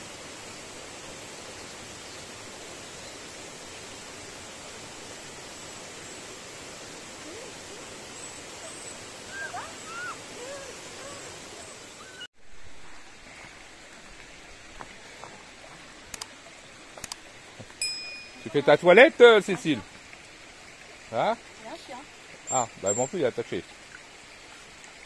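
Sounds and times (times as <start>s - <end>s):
stream and waterfall rushing: 0.0s - 25.0s
water trickling over rocks: 0.0s - 25.0s
light clicks: 16.1s - 16.3s, 17.0s - 17.2s.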